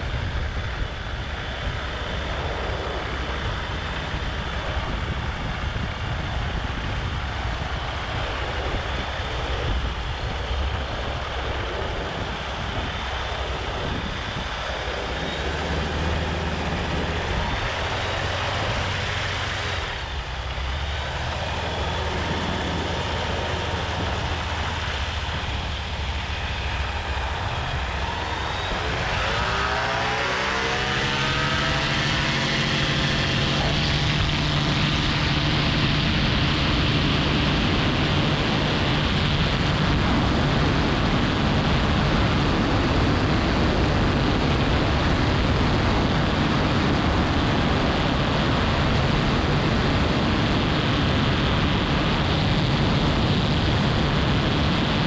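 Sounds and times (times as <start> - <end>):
light aircraft engine and propeller: 0.0 - 55.0.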